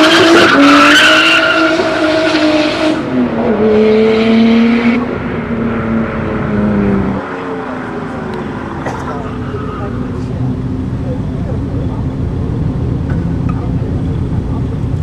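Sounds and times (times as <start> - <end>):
car engine revving high: 0.0 - 14.4
tyres squealing: 7.8 - 10.9.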